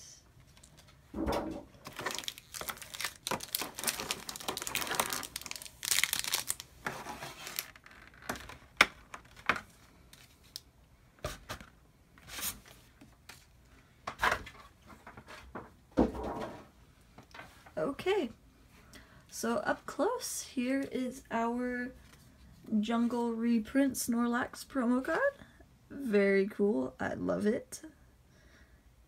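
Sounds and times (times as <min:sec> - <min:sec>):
plastic packaging crinkling and tearing: 0:01.8 - 0:10.7.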